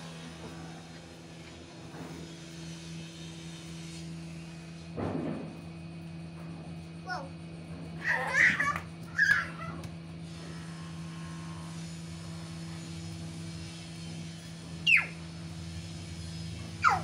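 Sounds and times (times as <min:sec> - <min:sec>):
puppy yelping: 0:08.0 - 0:09.9, 0:14.9 - 0:15.2.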